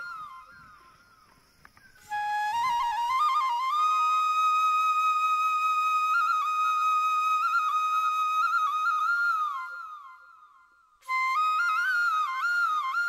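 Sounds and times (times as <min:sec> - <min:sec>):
slow solo flute melody: 0:00.0 - 0:13.0.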